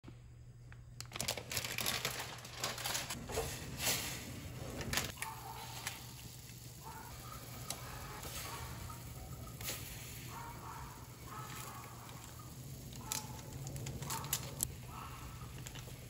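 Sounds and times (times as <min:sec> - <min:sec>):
plastic wrapper crinkling: 0:00.7 - 0:03.4, 0:11.2 - 0:16.0.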